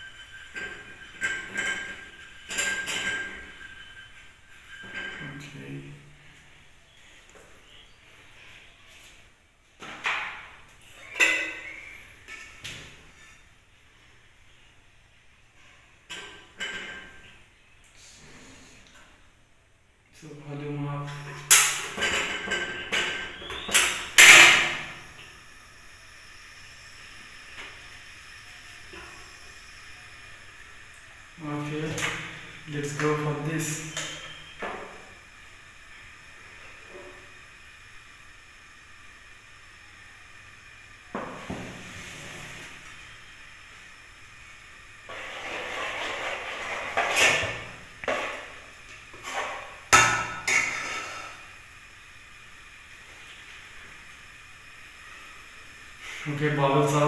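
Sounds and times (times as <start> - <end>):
faint steady hiss: 23.3 - 57.0
frying pan scraping on grate: 41.5 - 42.9, 45.1 - 49.8, 50.4 - 51.5.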